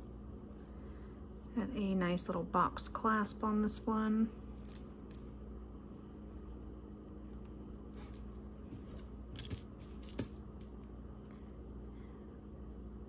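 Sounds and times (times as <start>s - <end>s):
faint steady hum: 0.0s - 13.0s
jewelry clinking: 4.5s - 5.4s, 7.9s - 10.7s.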